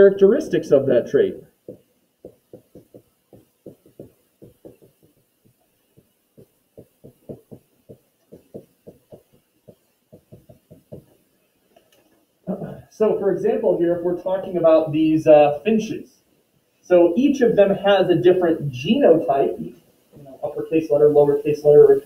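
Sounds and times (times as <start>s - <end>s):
pen tapping while writing: 1.7s - 11.2s.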